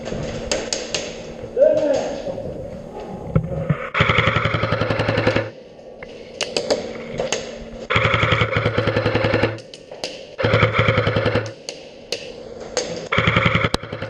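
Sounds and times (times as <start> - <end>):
airsoft rifle full-auto bursts: 3.9 - 5.5, 7.9 - 9.6, 10.4 - 11.6, 13.1 - 14.0.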